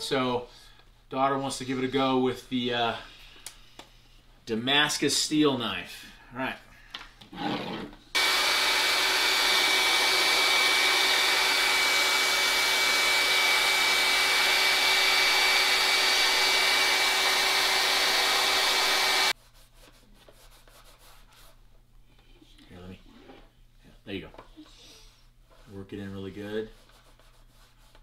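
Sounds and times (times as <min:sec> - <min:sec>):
hair dryer running: 0:08.2 - 0:19.4.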